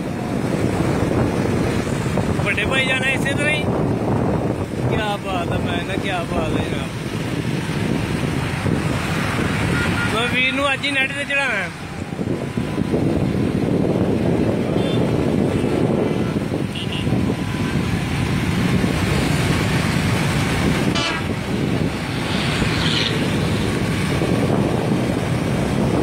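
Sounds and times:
road noise: 0:00.0 - 0:26.0
wind noise: 0:00.0 - 0:26.0.

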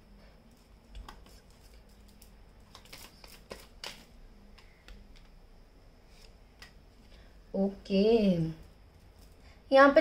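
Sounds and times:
cards sliding and tapping: 0:01.0 - 0:05.4.

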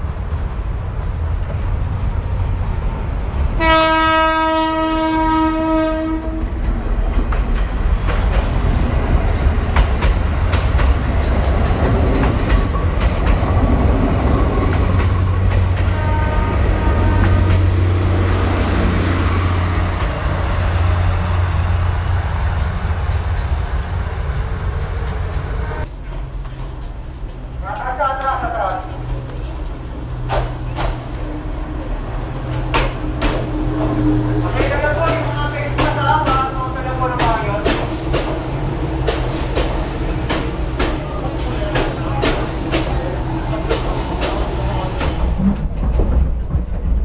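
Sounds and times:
train rumble: 0:00.0 - 0:47.0
train horn blasts: 0:03.6 - 0:06.6, 0:15.8 - 0:17.8
wheels clicking over rail joints: 0:06.3 - 0:16.2, 0:24.7 - 0:47.0.

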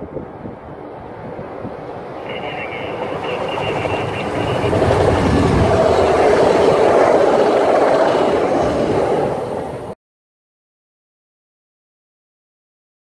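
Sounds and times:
passenger train rushing past: 0:00.0 - 0:10.0.

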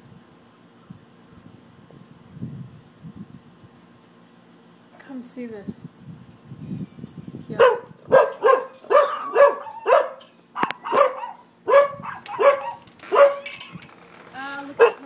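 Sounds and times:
dog barking: 0:07.6 - 0:13.6, 0:14.8 - 0:15.0.

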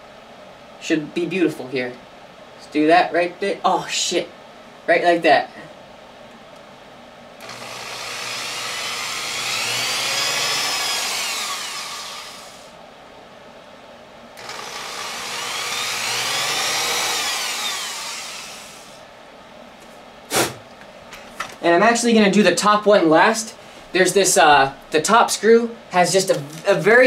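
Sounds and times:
electric drill motor running: 0:07.4 - 0:12.7, 0:14.4 - 0:19.0.

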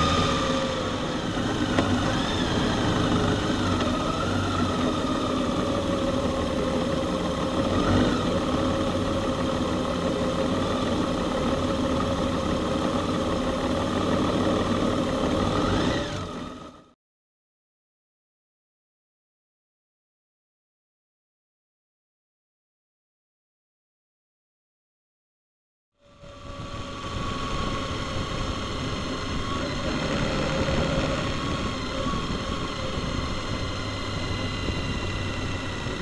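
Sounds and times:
road and wind noise: 0:00.0 - 0:16.8, 0:26.0 - 0:36.0
motorcycle engine cruising: 0:00.0 - 0:16.9, 0:26.0 - 0:36.0
faint wavering whine: 0:26.0 - 0:36.0.

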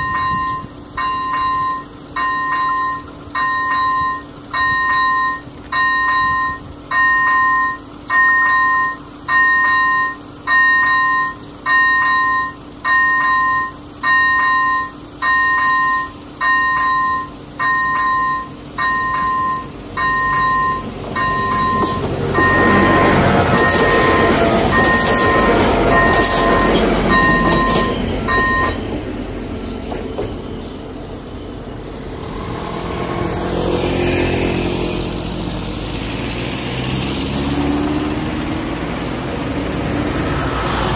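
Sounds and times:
level crossing bell ringing: 0:00.0 - 0:28.8
road vehicle engine: 0:00.0 - 0:40.9
passenger train rushing past: 0:14.3 - 0:40.9
train wheels clicking over rails: 0:16.4 - 0:30.7.

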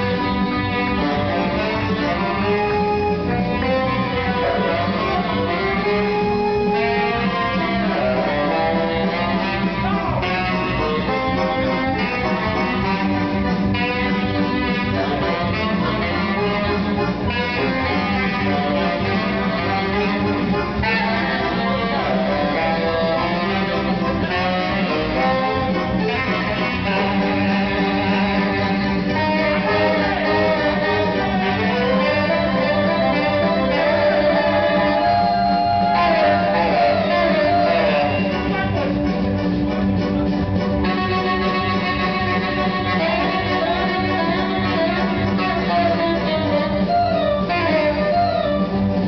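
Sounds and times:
backing music with guitar and bass: 0:00.0 - 0:49.0
saxophone playing: 0:00.0 - 0:49.0.

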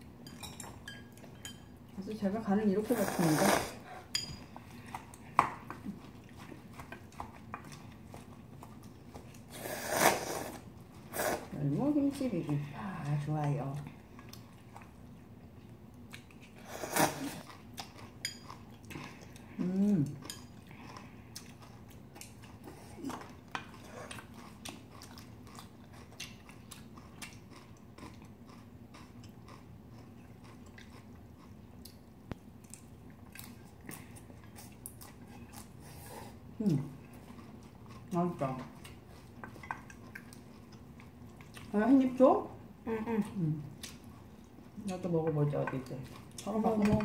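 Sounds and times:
chewing and crunching: 0:04.0 - 0:09.6, 0:10.4 - 0:42.2, 0:45.7 - 0:47.0.

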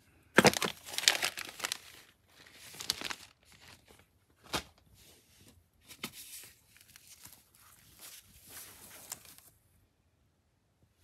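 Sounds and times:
plastic wrapping crinkling: 0:00.4 - 0:04.0.

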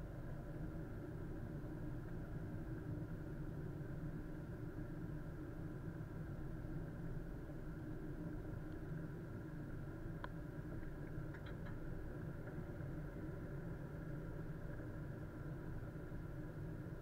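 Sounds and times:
faint ticks: 0:08.5 - 0:09.0, 0:10.2 - 0:13.2.

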